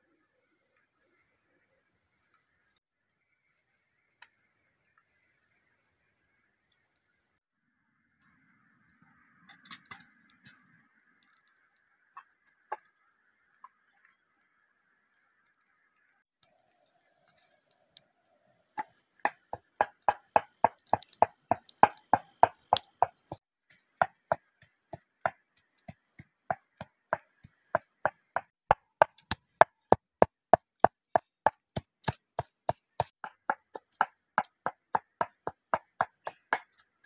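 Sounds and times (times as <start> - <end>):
high insect drone: 18.4 - 23.4.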